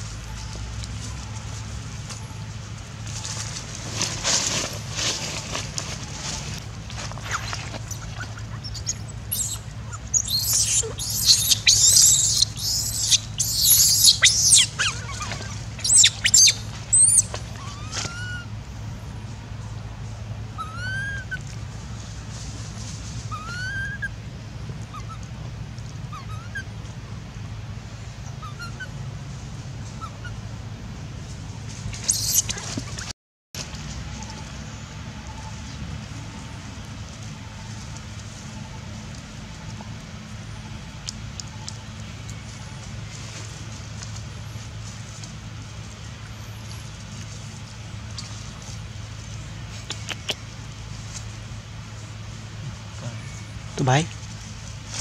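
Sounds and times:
thin rising chirps: 0:07.3 - 0:18.4
baby monkey screaming: 0:07.3 - 0:18.5, 0:20.6 - 0:21.5, 0:23.3 - 0:24.2, 0:24.9 - 0:25.3, 0:26.1 - 0:26.7, 0:28.3 - 0:29.0, 0:32.0 - 0:33.1.

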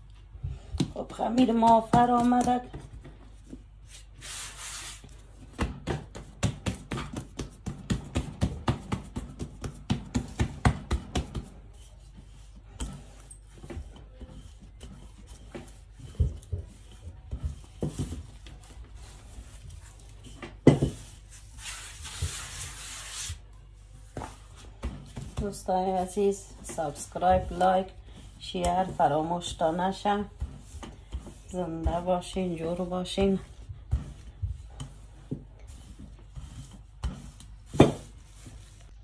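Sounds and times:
hand rubbing flour on mat: 0:03.9 - 0:05.4, 0:11.2 - 0:39.0.

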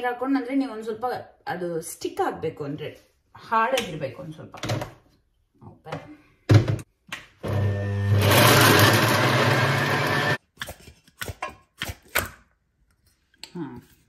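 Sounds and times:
blender grinding: 0:07.4 - 0:10.4.

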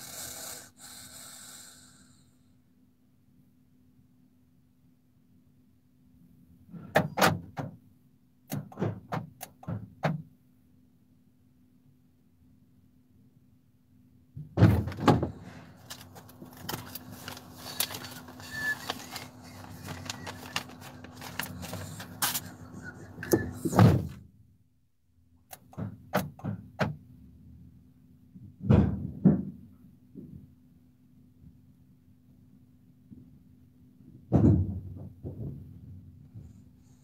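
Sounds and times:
van doors thudding: 0:14.5 - 0:15.6
rustling: 0:15.3 - 0:23.5.

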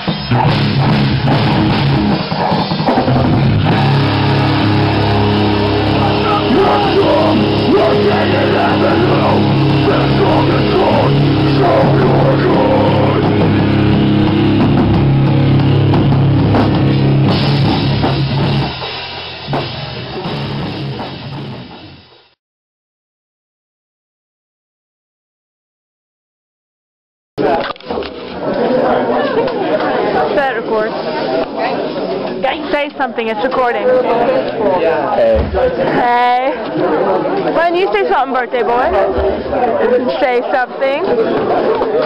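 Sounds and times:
rock band playing live: 0:00.0 - 0:22.4
last chord ringing out: 0:03.8 - 0:17.6.

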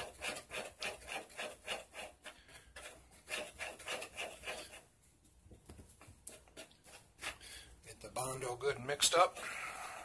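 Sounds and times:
spreader scraping filler on board: 0:00.0 - 0:04.9.

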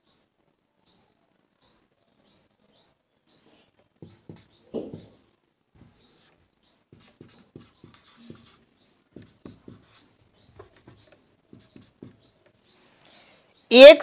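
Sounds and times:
small bird chirping: 0:00.0 - 0:05.3, 0:05.9 - 0:13.9
marker pen writing on board: 0:04.0 - 0:05.2, 0:05.8 - 0:12.4.

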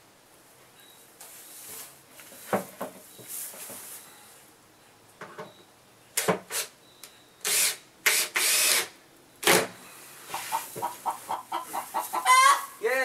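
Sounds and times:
cordless drill-driver running: 0:07.5 - 0:08.9.

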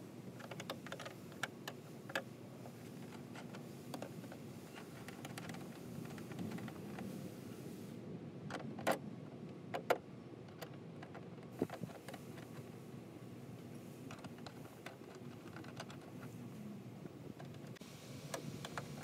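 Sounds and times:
low background hum: 0:00.0 - 0:19.0
sharp clicks and light taps: 0:00.4 - 0:02.3.

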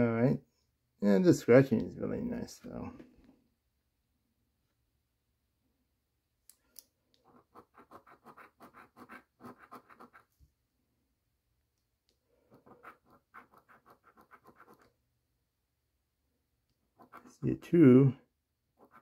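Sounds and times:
coin scratching lottery ticket: 0:07.2 - 0:10.3, 0:12.5 - 0:14.9, 0:17.0 - 0:17.4, 0:18.8 - 0:19.0.

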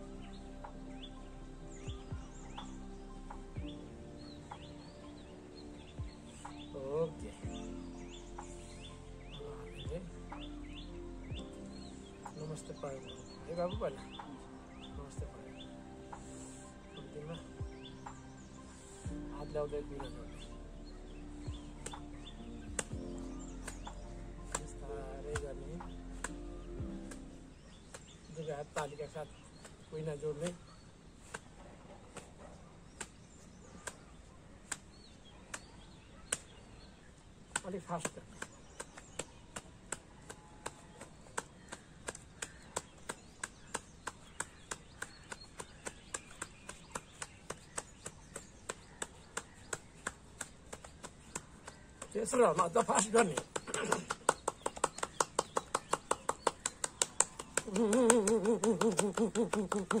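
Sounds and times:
hands clapping slowly: 0:21.6 - 0:26.4, 0:33.0 - 0:33.2, 0:37.5 - 1:00.0
person vocalizing wavering pitch: 0:57.6 - 1:00.0.

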